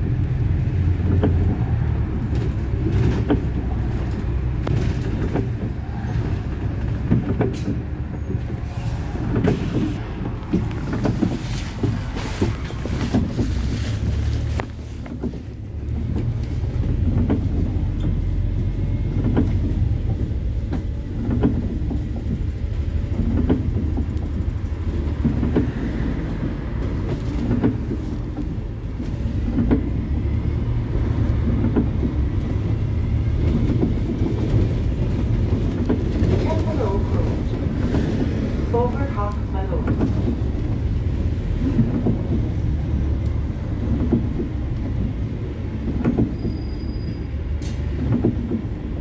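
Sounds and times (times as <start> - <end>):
bus body rattles and knocks: 0.0 - 49.0
bus engine and road rumble: 0.0 - 49.0.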